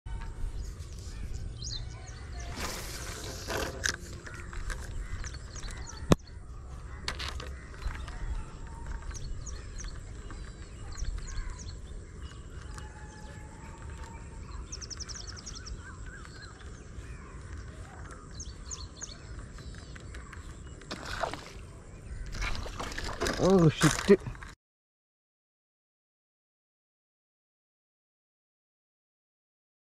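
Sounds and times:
bird trill: 0:00.1 - 0:21.4
birds chirping: 0:00.1 - 0:24.6.

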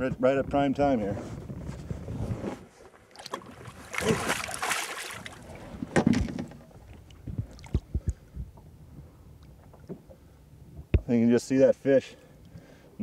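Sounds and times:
water splashing beside boat: 0:02.8 - 0:08.2.

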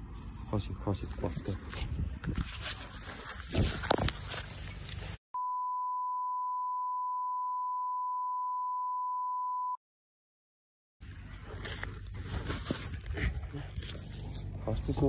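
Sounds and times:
steady electronic beep: 0:05.4 - 0:09.8.

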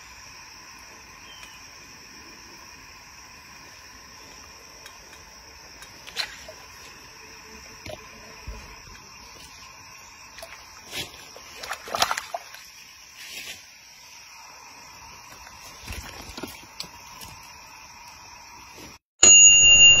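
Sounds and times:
insect chorus: 0:00.0 - 0:19.0
fish splashing in water: 0:10.2 - 0:12.9.

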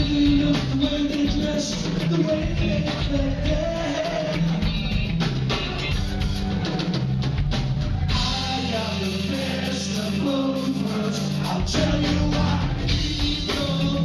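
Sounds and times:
person singing: 0:00.0 - 0:05.0, 0:08.1 - 0:14.0
bass guitar: 0:00.0 - 0:14.0
drum kit: 0:00.0 - 0:14.0
electric guitar: 0:00.0 - 0:14.0.

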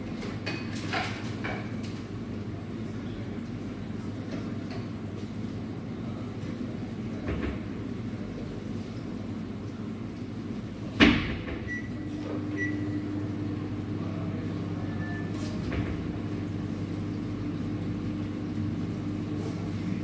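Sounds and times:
steady machine hum: 0:11.5 - 0:20.0.

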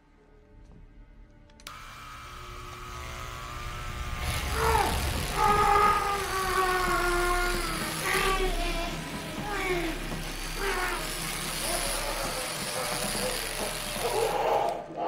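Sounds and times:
dermatome motor buzzing: 0:01.6 - 0:14.9.

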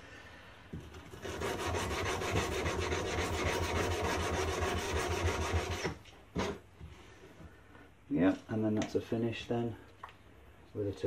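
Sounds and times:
sandpaper rasping on steel blade: 0:01.1 - 0:06.5.

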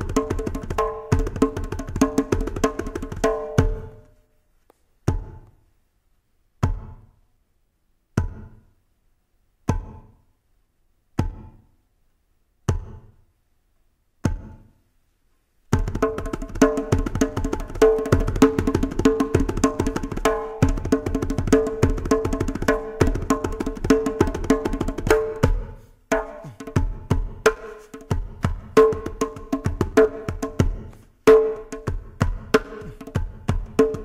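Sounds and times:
hand drum groove: 0:00.0 - 0:04.0, 0:15.7 - 0:34.0.

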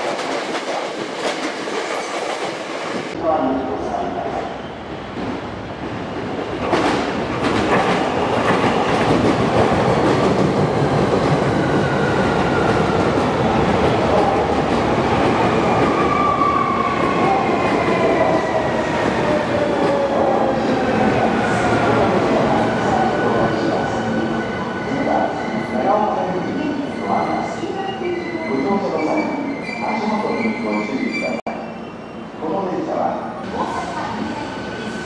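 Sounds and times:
train wheels rumbling on rail: 0:00.0 - 0:03.2, 0:05.0 - 0:27.0.

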